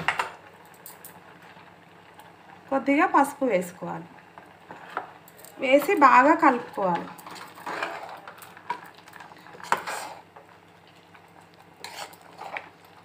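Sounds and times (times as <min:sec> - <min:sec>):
spoon stirring in metal pot: 0:05.7 - 0:13.0.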